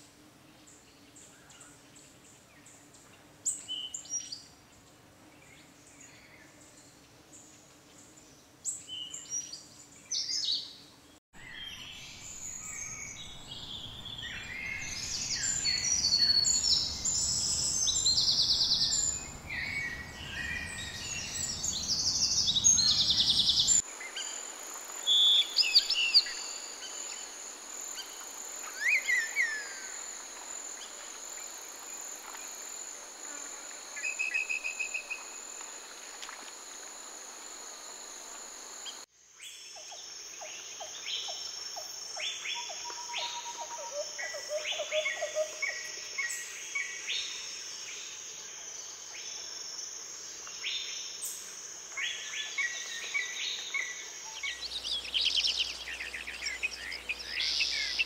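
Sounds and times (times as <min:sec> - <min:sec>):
birds chirping and trilling: 0:11.4 - 0:24.5, 0:52.1 - 0:58.0
insect drone: 0:11.4 - 0:58.0.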